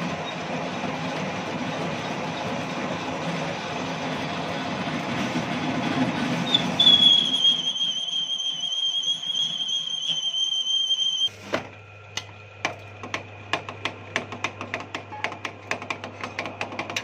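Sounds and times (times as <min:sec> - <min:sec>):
lathe running noise: 0:00.0 - 0:17.0
lathe tool squealing on metal: 0:06.1 - 0:11.3.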